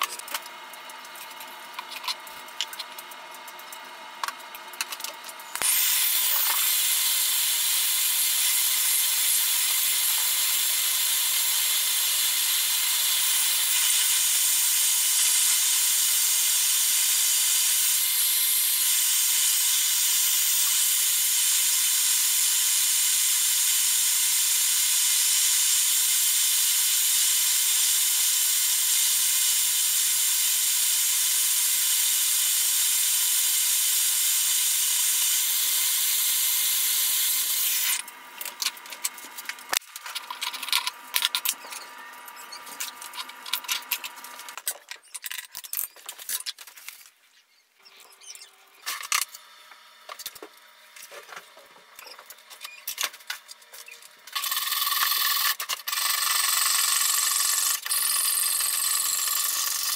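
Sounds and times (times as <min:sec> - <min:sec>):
gas torch hissing: 0:05.5 - 0:38.0.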